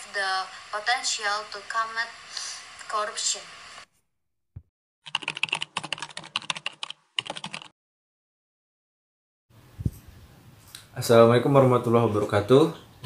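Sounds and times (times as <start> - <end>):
rapid clicks: 5.1 - 7.7.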